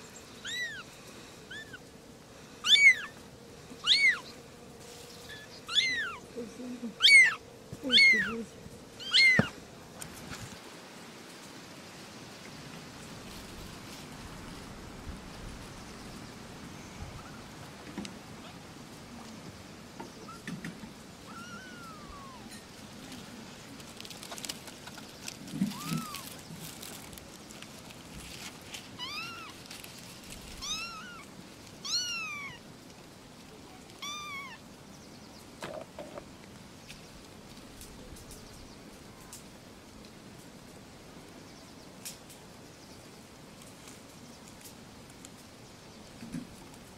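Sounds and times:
steady background hiss: 0.0 - 46.9
kittens mewing: 0.4 - 0.9, 1.5 - 1.8, 2.6 - 3.2, 3.8 - 4.3, 5.3 - 9.6, 21.2 - 22.6, 25.5 - 26.4, 29.0 - 29.6, 30.6 - 32.6, 34.0 - 34.6.

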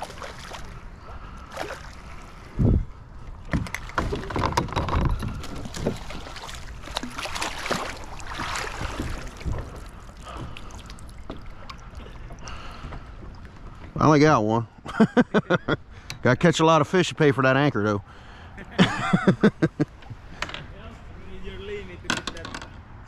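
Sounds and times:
gear knocking against kayak: 3.5 - 7.9
fish splashing at surface: 5.3 - 11.2.

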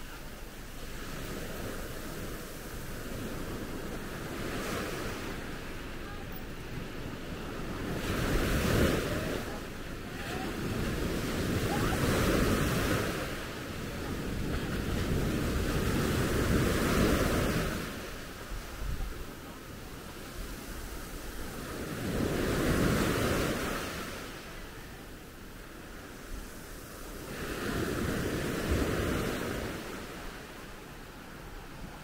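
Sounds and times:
small waves breaking on shore: 0.0 - 32.0.

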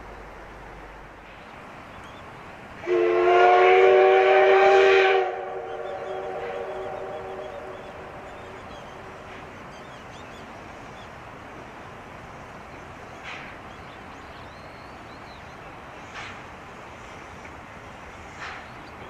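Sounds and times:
steam train rushing noise: 0.0 - 19.0
birds chirping: 1.3 - 2.6, 5.6 - 16.4, 17.0 - 19.0
steam locomotive whistle: 2.8 - 8.6.

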